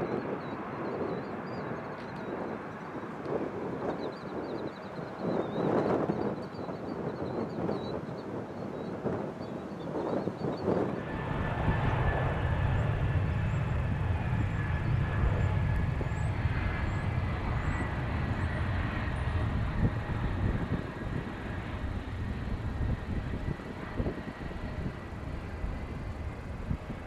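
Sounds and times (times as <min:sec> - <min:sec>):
jet engines rumbling: 0:00.0 - 0:27.0
faint steady whine: 0:10.7 - 0:27.0.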